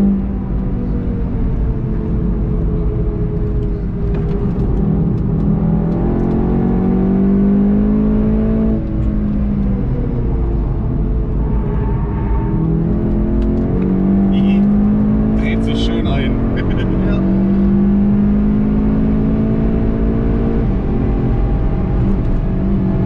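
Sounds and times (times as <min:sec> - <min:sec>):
car engine accelerating: 0:00.0 - 0:23.0
car braking: 0:11.1 - 0:17.6.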